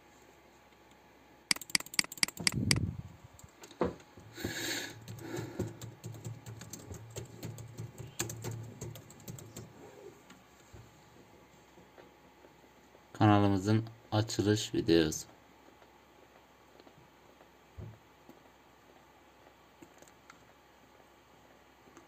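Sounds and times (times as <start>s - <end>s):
typing on computer keyboard: 1.5s - 2.8s, 5.0s - 9.7s.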